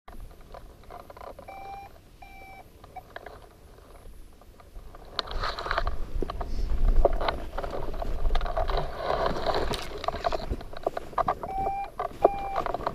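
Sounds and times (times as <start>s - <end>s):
handling clicks and rustling: 0.1s - 12.9s
short electronic beeps: 1.5s - 2.6s, 11.4s - 12.6s
low wind rumble: 1.8s - 12.9s.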